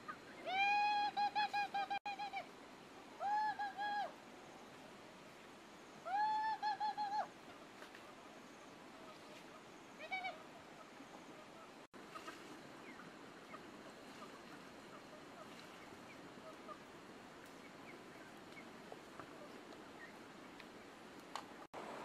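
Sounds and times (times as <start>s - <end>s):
steady hiss: 0.0s - 6.4s.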